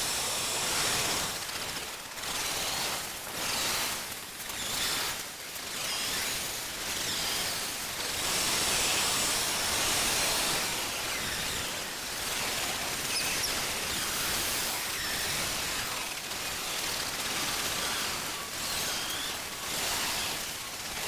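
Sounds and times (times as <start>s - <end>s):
steady outdoor hiss: 0.0s - 21.0s.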